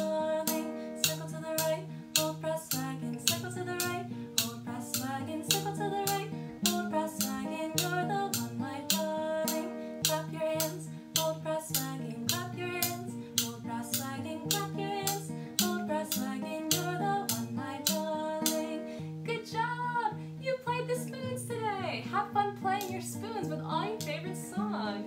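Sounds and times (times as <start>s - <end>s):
guitar: 0.0s - 25.0s
person singing: 0.0s - 25.0s.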